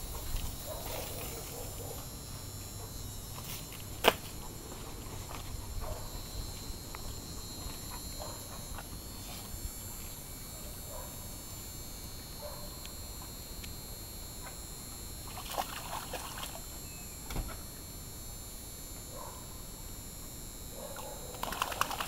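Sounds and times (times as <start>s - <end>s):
dog paws splashing in water: 15.3s - 16.7s, 21.3s - 22.0s.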